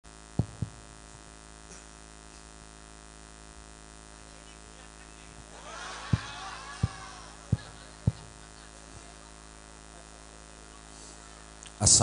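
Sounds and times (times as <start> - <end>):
electrical hum from speakers: 0.0 - 12.0
murmur of voices: 4.1 - 12.0.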